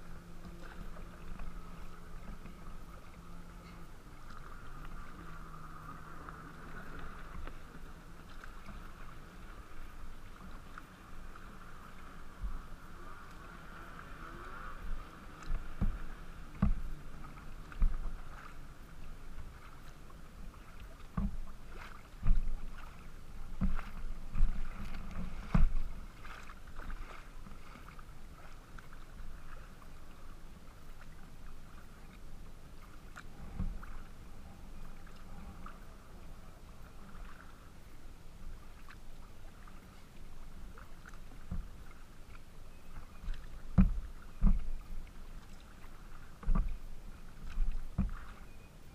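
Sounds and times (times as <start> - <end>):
water splashing along kayak hull: 0.0 - 48.9
low knocks: 15.5 - 16.9, 43.7 - 44.7.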